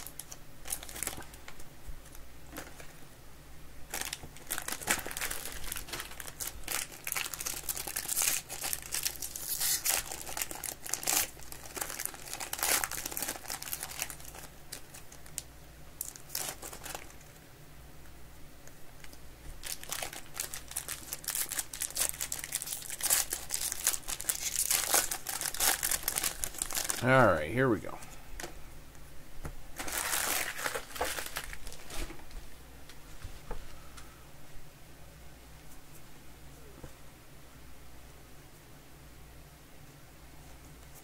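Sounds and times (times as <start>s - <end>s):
wrappers tearing and crinkling: 0.0s - 2.9s, 3.9s - 15.4s, 16.0s - 17.2s, 19.6s - 27.1s, 29.8s - 32.2s.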